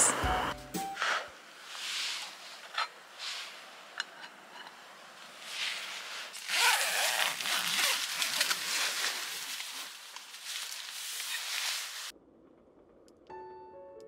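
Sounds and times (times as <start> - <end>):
tent fabric rustling: 5.2 - 12.1
tent zipper being pulled: 5.4 - 12.1.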